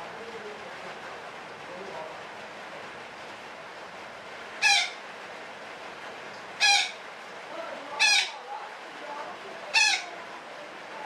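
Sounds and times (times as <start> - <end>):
parakeet calls: 4.6 - 5.0, 6.6 - 7.0, 8.0 - 8.4, 9.7 - 10.2.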